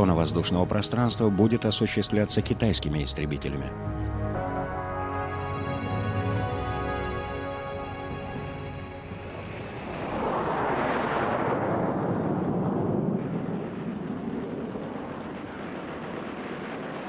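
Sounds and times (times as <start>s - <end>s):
jet aircraft passing: 0.0s - 17.0s.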